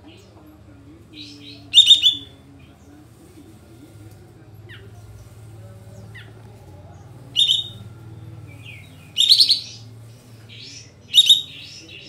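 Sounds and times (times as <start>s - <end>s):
bulbul singing: 1.0s - 3.0s, 4.6s - 12.0s.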